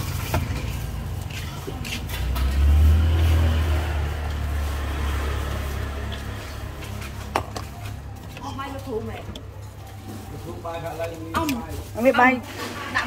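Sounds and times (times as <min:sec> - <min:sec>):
vehicle passing by: 0:00.0 - 0:08.2.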